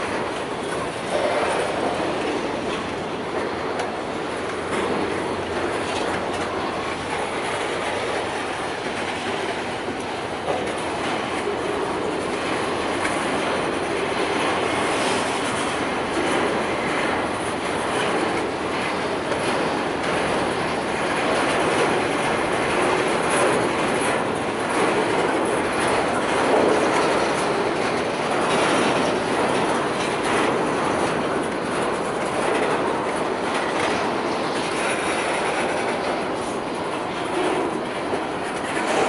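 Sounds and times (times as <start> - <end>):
freight train wheels clattering: 0.0 - 39.0.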